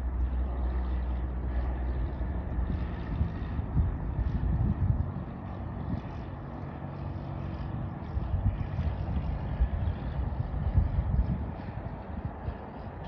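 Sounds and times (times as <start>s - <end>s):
propeller plane droning: 0.0s - 13.0s
wind buffeting microphone: 0.0s - 13.0s.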